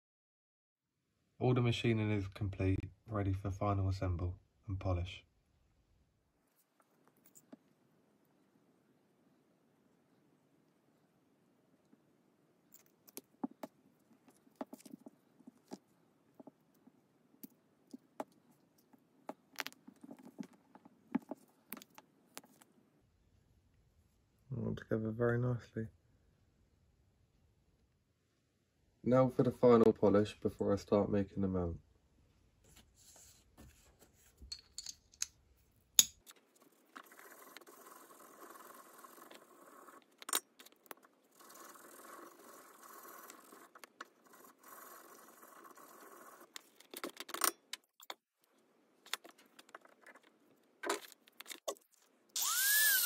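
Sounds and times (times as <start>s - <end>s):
metal parts clicking and tapping: 34.5s - 35.4s.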